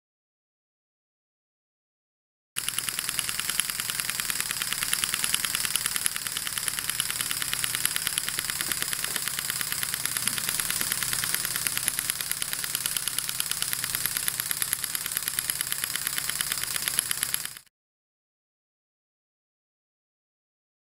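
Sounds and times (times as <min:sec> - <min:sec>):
model steam engine exhaust puffs: 0:02.6 - 0:17.7
valve gear clicking: 0:02.6 - 0:17.7.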